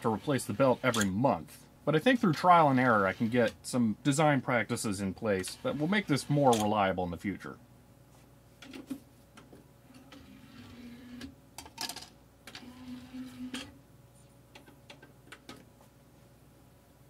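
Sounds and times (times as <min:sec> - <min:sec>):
disc drive whirring: 0:00.0 - 0:01.3, 0:01.9 - 0:04.4, 0:05.1 - 0:06.8, 0:09.9 - 0:11.4, 0:12.5 - 0:13.8.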